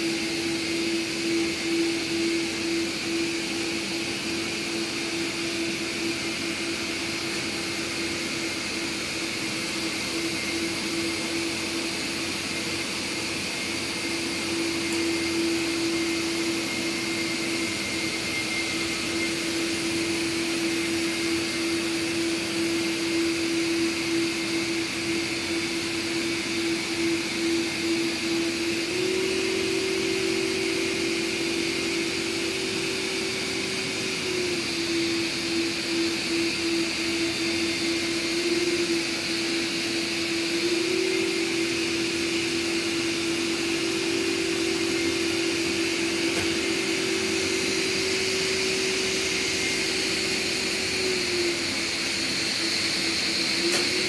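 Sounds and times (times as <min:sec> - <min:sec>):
robot vacuums whirring hum: 0:00.0 - 0:54.0
higher drone tone: 0:23.2 - 0:52.2.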